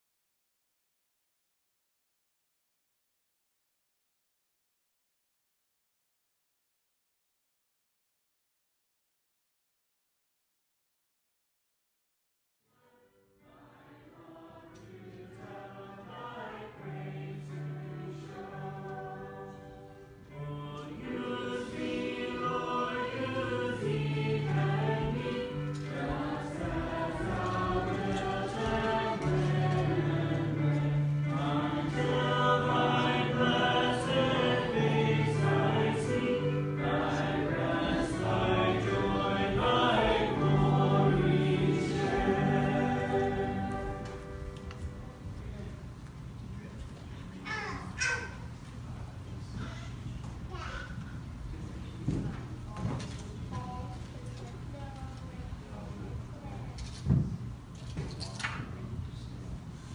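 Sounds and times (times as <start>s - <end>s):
congregation singing a hymn: 13.4s - 45.2s.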